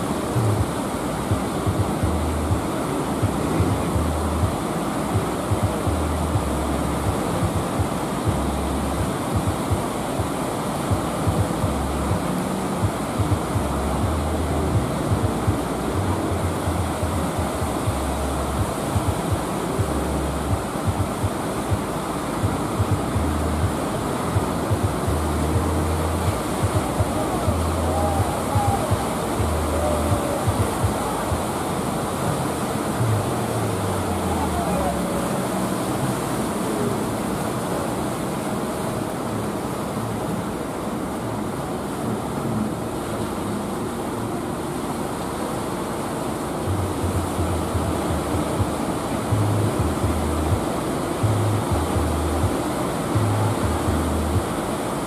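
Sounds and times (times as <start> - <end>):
wind buffeting microphone: 0.0 - 38.3
choppy sea washing: 0.0 - 55.0.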